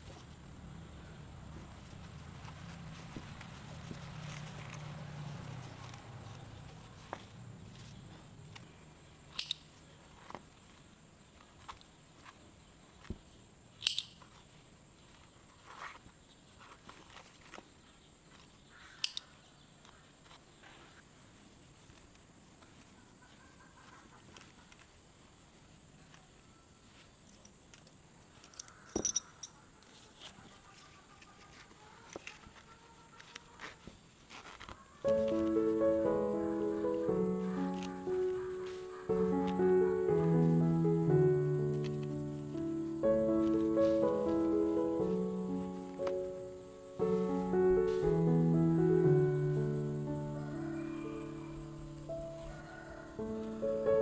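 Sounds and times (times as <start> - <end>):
fabric rustling: 1.4 - 8.6, 14.2 - 17.7, 30.1 - 40.6, 41.8 - 48.8
metal zipper clinking: 4.2 - 6.4, 28.4 - 29.6, 37.6 - 38.0.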